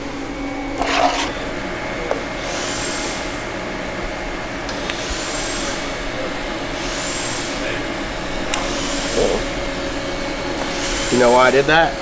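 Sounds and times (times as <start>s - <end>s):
welding arc hissing: 4.7s - 12.0s.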